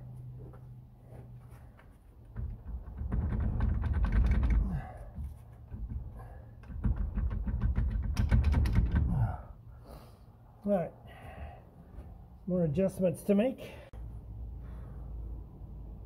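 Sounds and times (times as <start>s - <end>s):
metal clicking and clunking: 2.1s - 9.4s.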